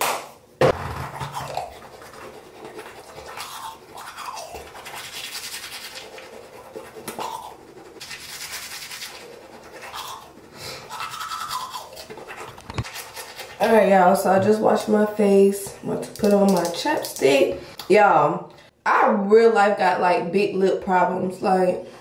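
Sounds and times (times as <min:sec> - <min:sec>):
toothbrush scrubbing teeth: 0:01.2 - 0:15.0, 0:15.6 - 0:17.4.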